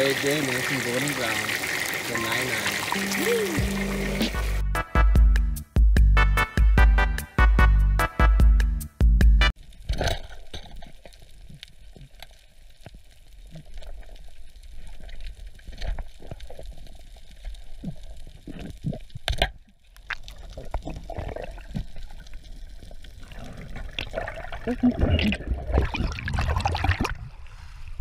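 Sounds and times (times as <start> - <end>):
small clicks and crackles: 9.6 - 24.2.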